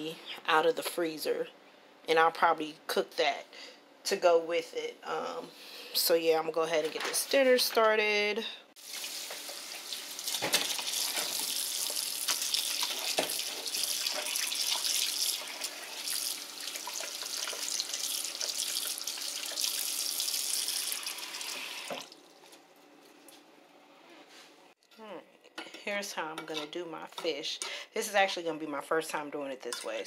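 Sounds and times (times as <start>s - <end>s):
tap water running into bowl: 10.3s - 22.2s.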